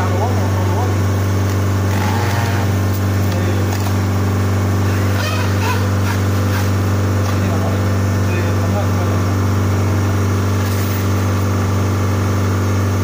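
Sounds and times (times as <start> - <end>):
refrigeration unit humming: 0.0 - 13.0.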